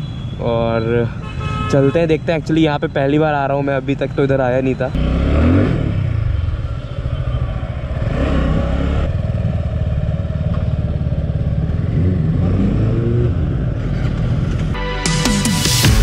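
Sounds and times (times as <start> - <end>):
motorcycle engine rumbling: 2.2 - 14.8.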